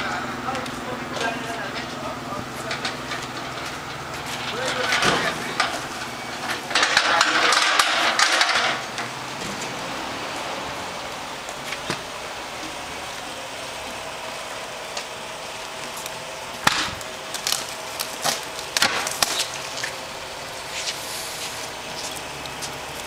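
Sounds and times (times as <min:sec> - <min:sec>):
pallet jack knocks and clatter: 0:02.7 - 0:09.6, 0:16.6 - 0:17.0.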